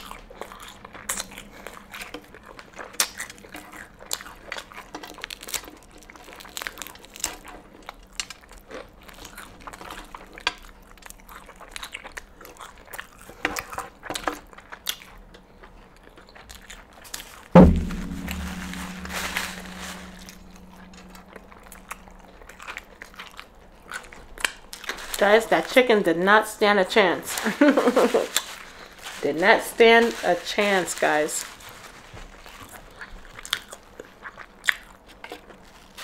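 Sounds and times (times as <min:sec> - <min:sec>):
chewing and crunching: 0:00.0 - 0:17.2, 0:31.4 - 0:36.0
loud low thump: 0:17.6 - 0:21.5.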